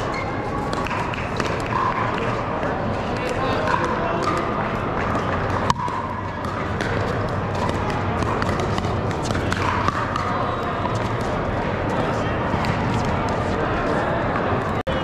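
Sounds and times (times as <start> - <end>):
paddles striking plastic ball: 3.2 - 11.4.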